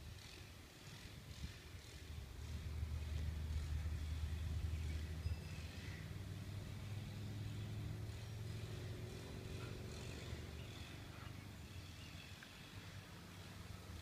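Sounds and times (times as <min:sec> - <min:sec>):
vehicle engine rumble: 0:00.0 - 0:14.0.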